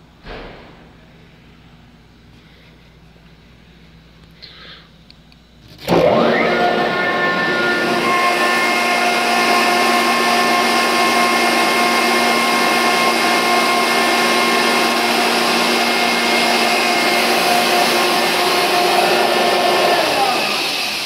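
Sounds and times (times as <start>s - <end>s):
air compressor running: 5.6s - 21.0s.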